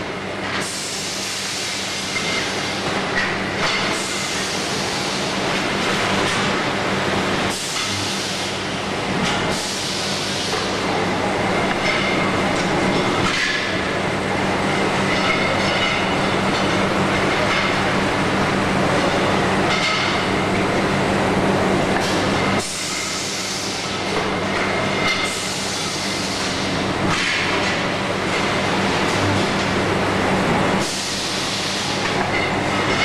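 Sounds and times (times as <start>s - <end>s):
roll forming machine humming: 0.0s - 33.0s.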